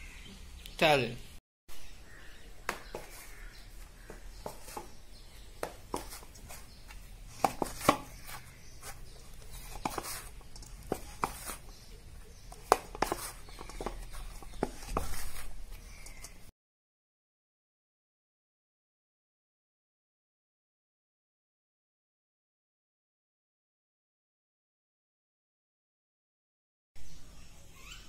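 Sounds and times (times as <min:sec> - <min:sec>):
dough slapping in metal bowl: 0:05.5 - 0:11.8, 0:12.5 - 0:16.4.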